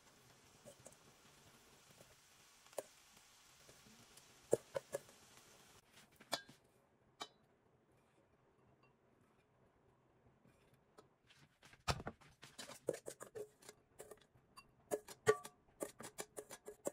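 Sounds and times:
faint room hiss: 0.0s - 11.6s.

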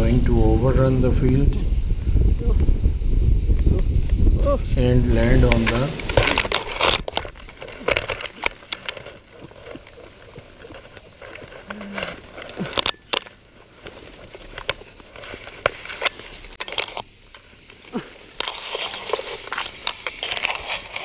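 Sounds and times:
leaves rustling: 0.0s - 21.0s
rustling and breaking twigs: 0.0s - 21.0s
steady high hiss: 0.0s - 21.0s
harness clicks: 4.8s - 21.0s.

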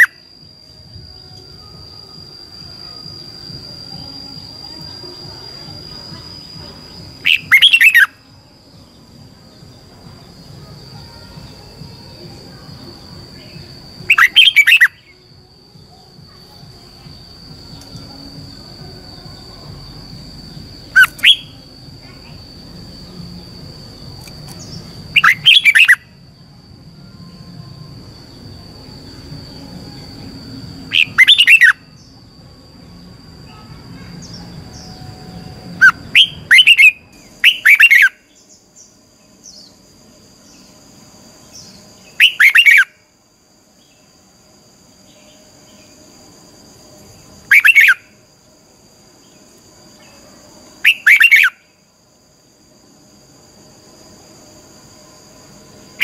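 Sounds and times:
high-pitched background tone: 0.0s - 39.2s.

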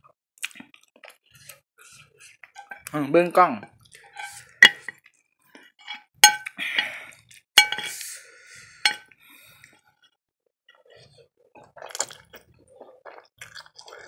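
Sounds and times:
fork scraping plate: 1.8s - 2.9s, 3.6s - 5.0s, 5.8s - 7.0s, 7.6s - 8.2s
metal fork clinking on plate: 5.8s - 6.9s, 7.6s - 8.0s.

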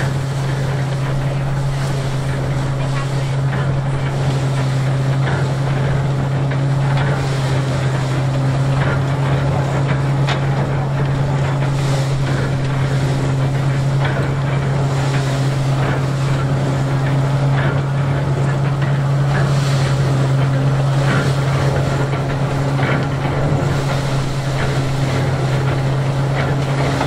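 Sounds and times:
threshing machine rattling: 8.8s - 27.0s.

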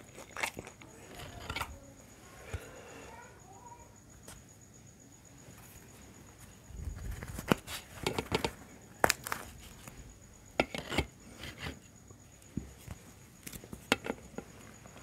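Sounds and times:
flatbread crunching: 0.0s - 1.8s, 6.8s - 10.0s.

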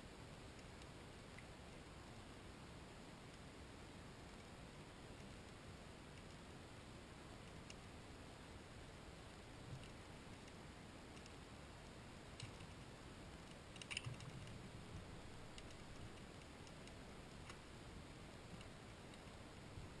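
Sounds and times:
faint clicks: 0.4s - 1.6s, 4.2s - 6.5s, 7.4s - 7.9s, 9.3s - 17.7s, 18.3s - 20.0s.

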